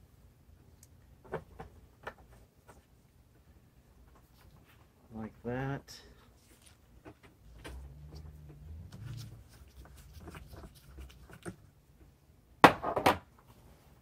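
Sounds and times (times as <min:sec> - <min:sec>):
hands rubbing plastic hose: 0:04.0 - 0:05.0, 0:06.2 - 0:11.8.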